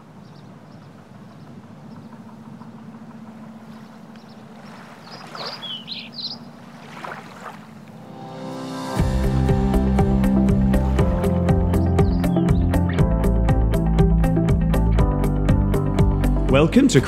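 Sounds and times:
short bird calls: 3.7 - 6.6
music: 8.0 - 17.0.

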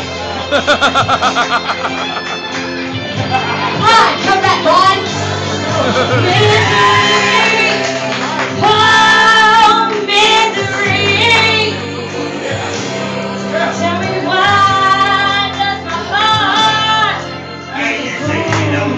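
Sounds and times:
recorded backing track: 0.0 - 18.9
person singing into a microphone: 4.1 - 18.9.

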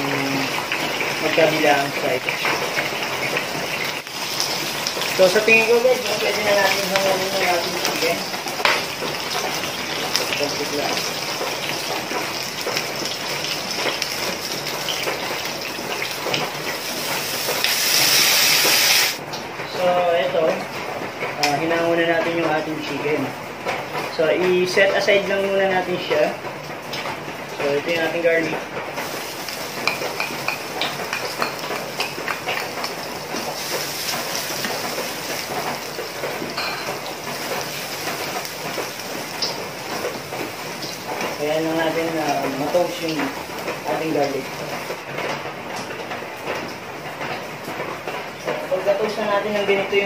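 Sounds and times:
oil sizzling in a frying pan: 0.0 - 19.2, 29.0 - 45.0
spatula stirring in pan: 15.4 - 19.2, 29.0 - 41.4.

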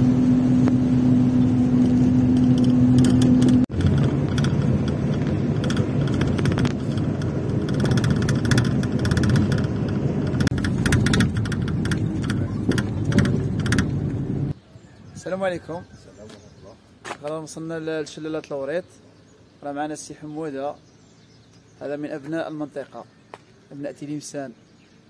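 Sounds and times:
engine drone: 0.0 - 14.6
vehicle road noise rumble: 0.0 - 25.0
light rattles and clicks: 1.8 - 14.6.

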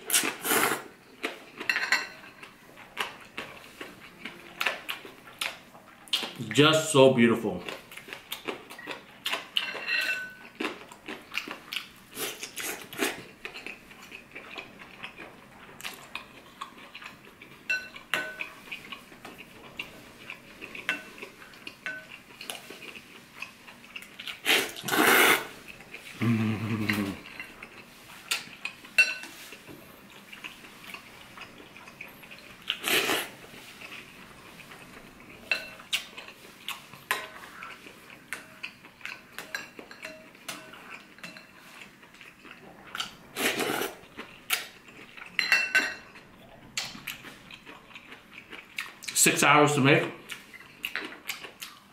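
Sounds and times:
loud slurp of noodles: 0.1 - 0.9, 24.4 - 25.5.

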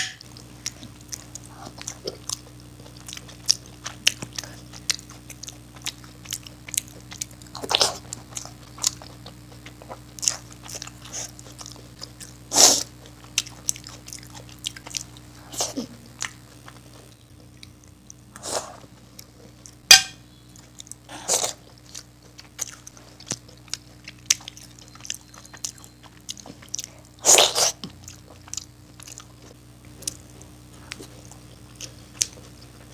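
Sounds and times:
wet chewing and lip smacking: 0.3 - 12.4, 13.0 - 15.3, 20.5 - 30.3.

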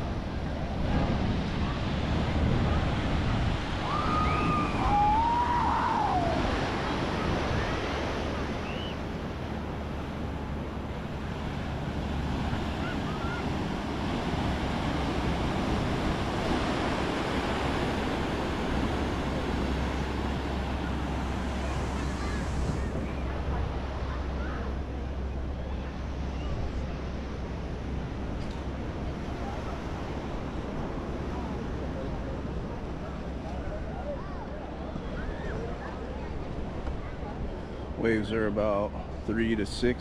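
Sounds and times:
surf breaking: 0.0 - 34.2
wind buffeting microphone: 0.0 - 38.0
short gliding calls: 8.6 - 9.0.

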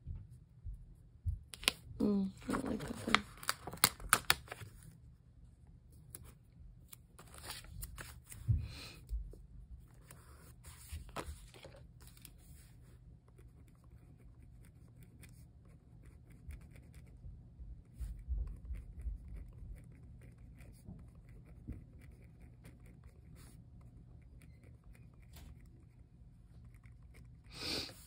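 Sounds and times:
paper rustling and tearing: 2.4 - 4.8, 7.2 - 8.5.

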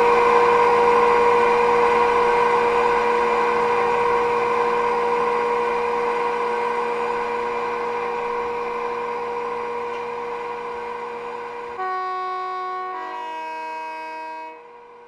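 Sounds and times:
electric locomotive running hum: 0.0 - 15.0
two-tone train horn: 11.4 - 15.0.

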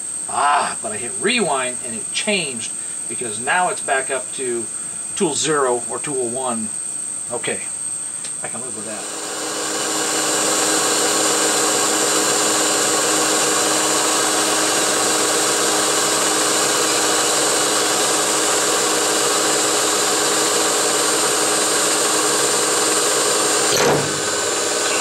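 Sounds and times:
metal lathe whine: 8.6 - 25.0
boring bar cutting metal: 8.9 - 25.0.

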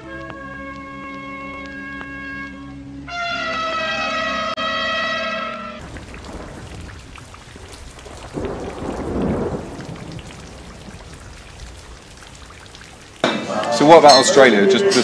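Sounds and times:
thunder rumble: 5.8 - 13.8
steady rain falling: 5.8 - 15.0.

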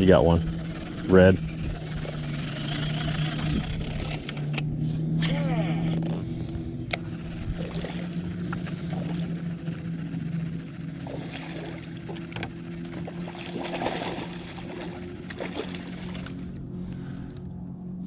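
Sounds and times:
low motor hum: 0.0 - 18.0
fish splashing at water surface: 7.6 - 8.2, 11.0 - 12.2, 12.9 - 16.4.

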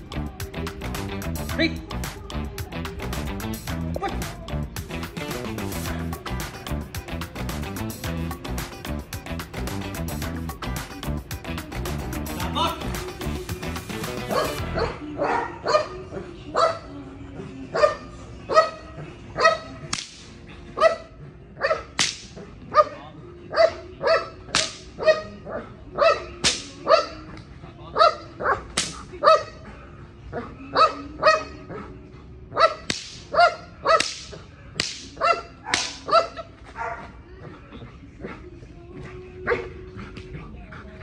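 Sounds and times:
dog barking: 14.3 - 16.8, 17.8 - 18.8, 19.4 - 19.8, 20.8 - 21.9, 22.7 - 24.4, 25.0 - 27.3, 28.0 - 29.6, 30.4 - 31.9, 32.5 - 34.5, 35.2 - 37.2, 39.5 - 39.7.

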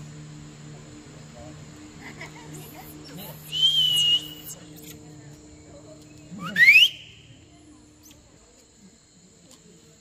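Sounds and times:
faint low hum: 0.0 - 10.0
insects droning: 0.0 - 10.0
rising whistle: 3.4 - 4.6, 6.4 - 7.3.

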